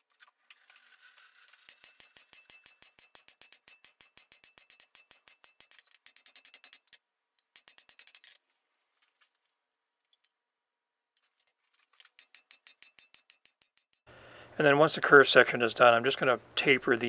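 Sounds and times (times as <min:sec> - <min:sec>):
hammer striking hot steel on anvil: 0:01.7 - 0:07.0, 0:12.2 - 0:14.1.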